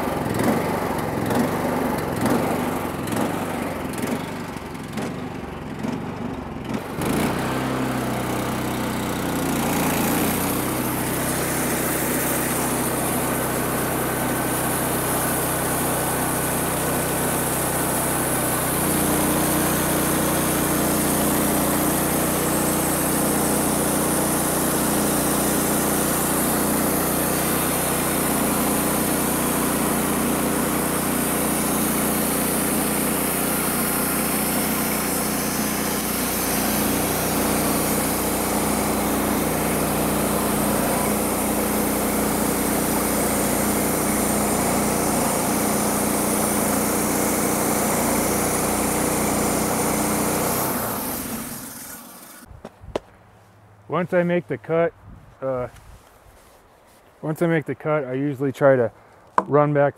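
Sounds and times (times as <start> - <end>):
small gasoline engine running: 0.0 - 52.5
band saw blade cutting log: 6.7 - 52.5.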